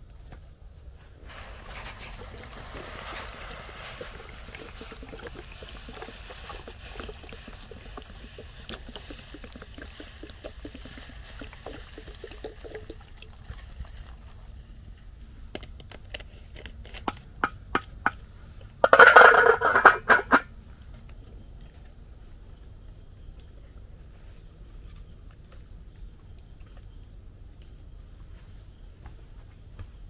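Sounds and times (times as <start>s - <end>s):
water dripping and trickling: 1.3s - 14.7s
water pouring: 1.3s - 14.7s.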